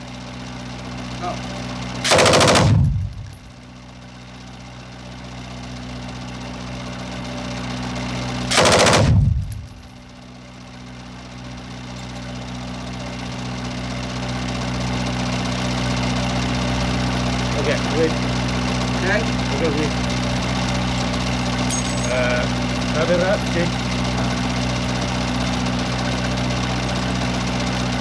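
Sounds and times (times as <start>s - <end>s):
engine hum: 0.0s - 28.0s
machine gun burst: 2.0s - 3.3s, 8.5s - 9.8s.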